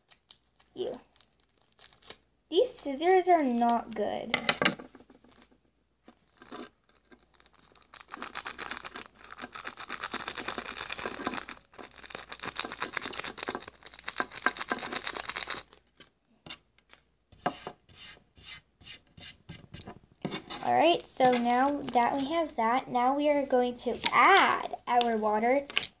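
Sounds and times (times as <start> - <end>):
plastic packet crinkling and tearing: 0.0 - 2.3, 6.2 - 16.0, 20.6 - 22.5.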